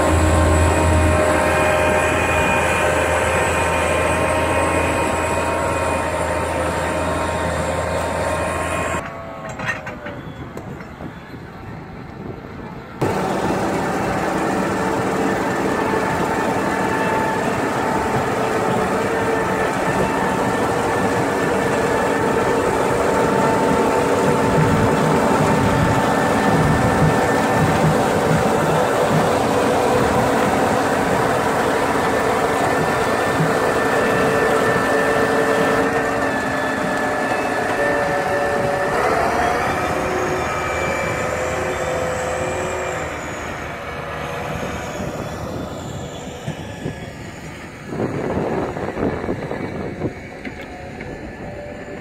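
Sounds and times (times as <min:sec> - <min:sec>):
harvester engine drone with whine: 0:00.0 - 0:52.0
elevator running: 0:13.0 - 0:45.7.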